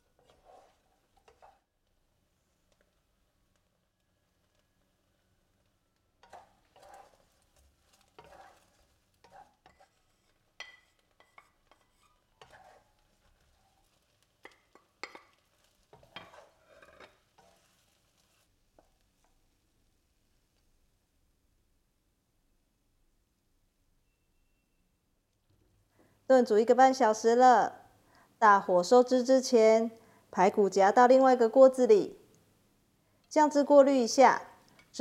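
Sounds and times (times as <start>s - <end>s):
spatula scraping and knocking wok: 0.0s - 1.7s, 6.2s - 19.4s.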